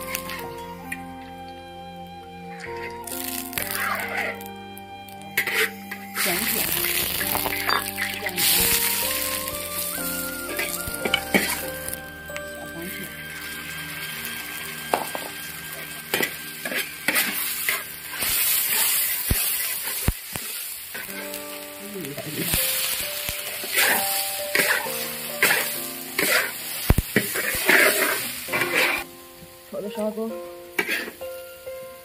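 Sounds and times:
food sizzling in a wok: 0:00.0 - 0:01.0, 0:03.0 - 0:04.5, 0:05.1 - 0:32.0.

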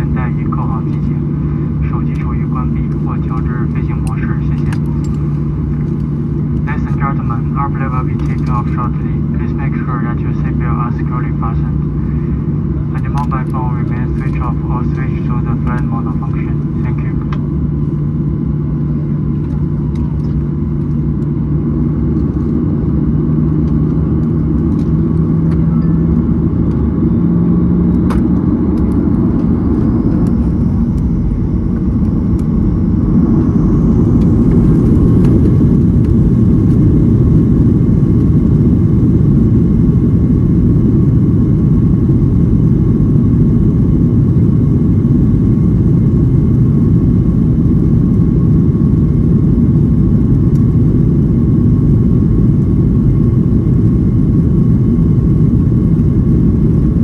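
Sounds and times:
jet engine rumble in cabin: 0:00.0 - 0:57.0
jet engine whine: 0:00.0 - 0:57.0.

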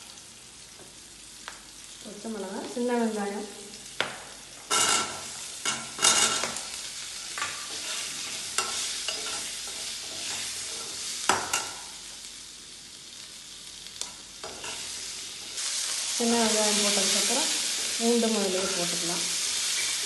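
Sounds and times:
vegetables sizzling in oil: 0:00.0 - 0:20.0
spatula scraping and knocking pan: 0:07.3 - 0:11.8.

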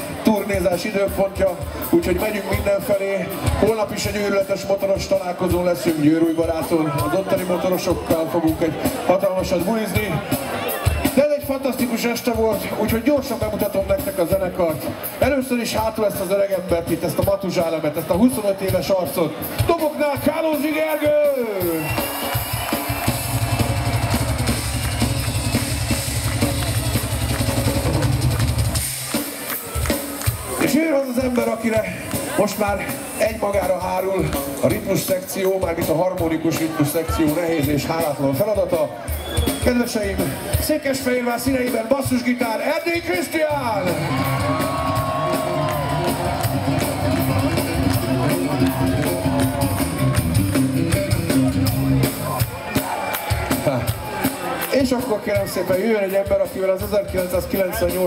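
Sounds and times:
fast bass drum strokes: 0:21.6 - 0:29.4
electric bass guitar solo: 0:43.9 - 0:52.3.

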